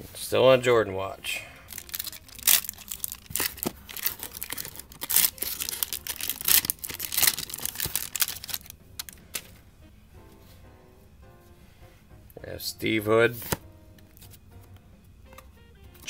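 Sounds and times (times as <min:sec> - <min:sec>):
foil wrapper tearing and crinkling: 0:01.7 - 0:09.5.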